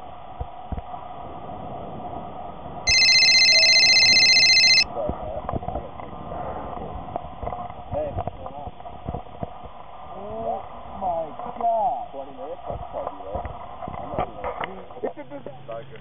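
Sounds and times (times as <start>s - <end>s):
cell phone ringing: 2.9s - 4.9s.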